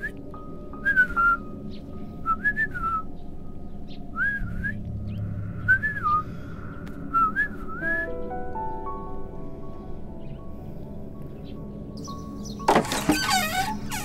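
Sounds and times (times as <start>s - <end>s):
soft background music: 0.0s - 14.0s
whistled bird-like calls: 4.1s - 6.3s, 7.0s - 8.3s.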